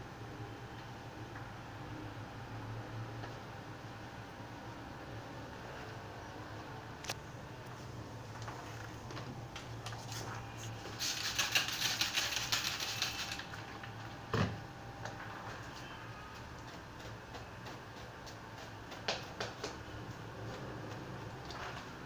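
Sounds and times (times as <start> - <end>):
rapid crackling and rustling clicks: 8.3 - 14.0.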